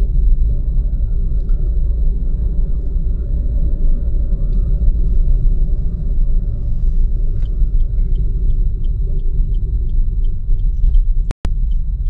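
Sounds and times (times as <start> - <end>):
car road and engine rumble: 0.0 - 12.0
turn signal ticking: 7.3 - 12.0.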